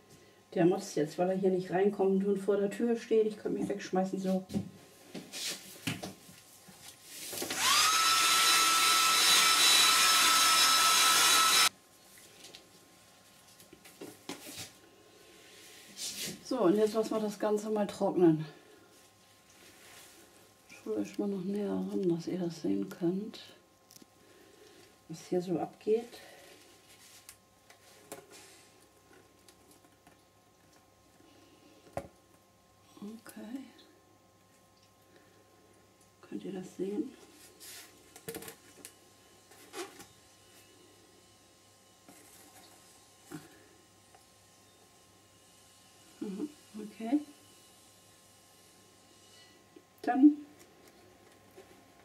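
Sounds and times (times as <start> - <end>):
hair dryer blowing: 7.4 - 11.7.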